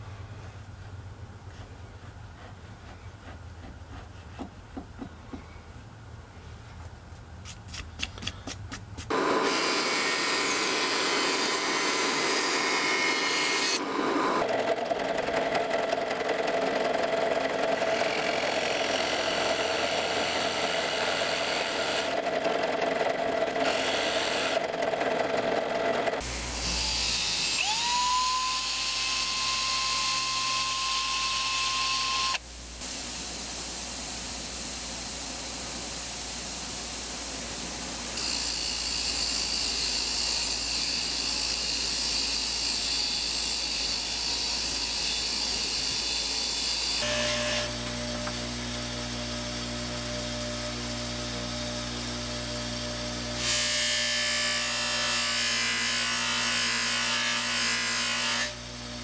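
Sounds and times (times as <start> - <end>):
bench grinder grinding: 9.1 - 32.4, 38.0 - 59.0
drill press boring into wood: 26.2 - 32.4
motor whine: 26.2 - 32.4, 38.2 - 53.4.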